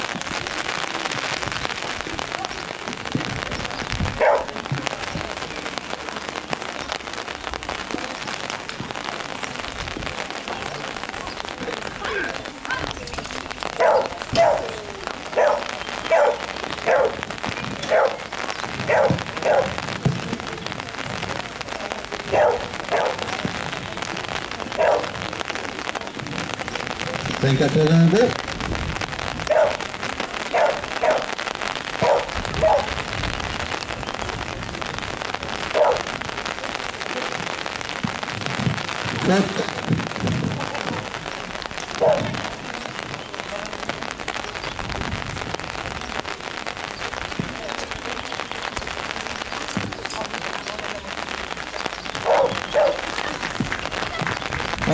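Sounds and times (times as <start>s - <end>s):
rain pattering: 0.0s - 54.9s
dog barking: 4.2s - 4.5s, 13.8s - 18.2s, 18.8s - 19.8s, 22.3s - 23.3s, 24.8s - 25.2s, 29.5s - 29.9s, 30.5s - 31.4s, 32.0s - 33.0s, 35.7s - 36.1s, 42.0s - 42.4s, 52.2s - 53.0s.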